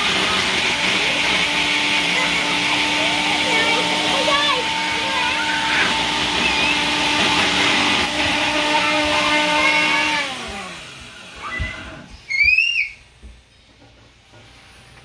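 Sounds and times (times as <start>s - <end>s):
blender motor running: 0.0s - 12.2s
high squeal of blender jar: 11.4s - 13.0s.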